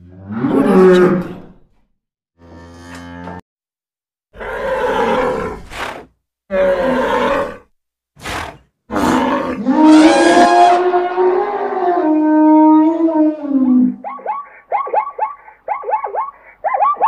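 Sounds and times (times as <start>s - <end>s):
wild animal calls: 8.2s - 17.0s.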